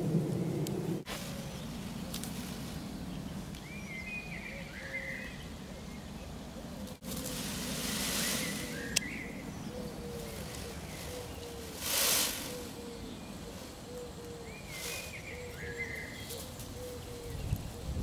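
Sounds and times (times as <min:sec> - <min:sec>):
rustling hiss: 0:00.0 - 0:03.9, 0:06.4 - 0:18.0.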